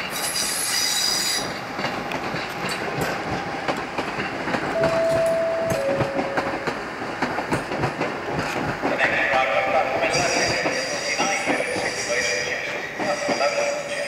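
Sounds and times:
train wheels clicking over rail joints: 0.0s - 14.0s.

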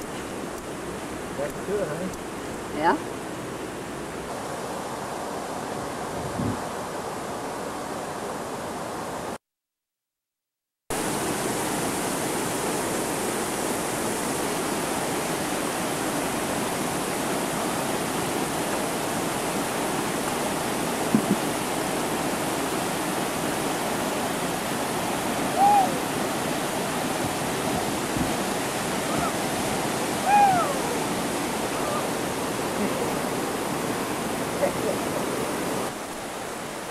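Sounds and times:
whitewater rapids rushing: 10.9s - 36.9s
brief high call: 25.5s - 26.0s.

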